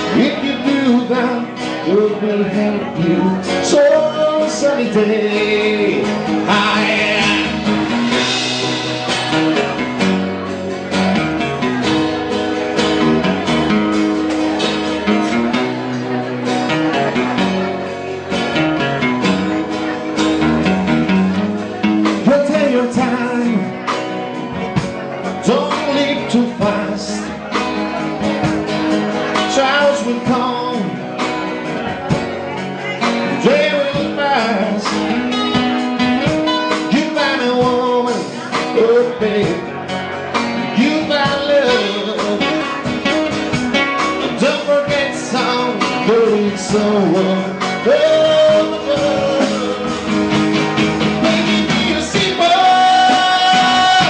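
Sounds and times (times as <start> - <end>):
person singing: 0.0 - 10.5, 21.8 - 27.5, 29.2 - 32.1, 32.8 - 35.6, 36.5 - 54.0
guitar: 0.0 - 54.0
live band playing: 0.0 - 54.0.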